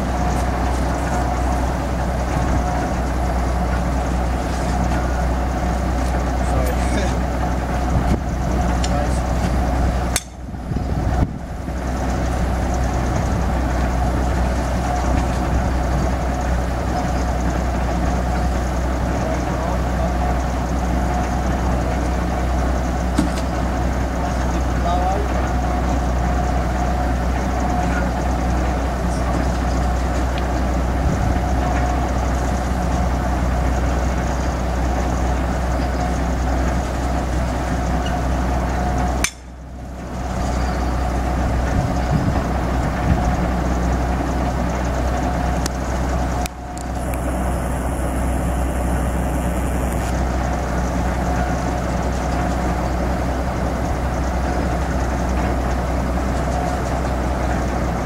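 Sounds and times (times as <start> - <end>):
crane engine idling: 0.0 - 58.0
steady hum: 22.2 - 58.0.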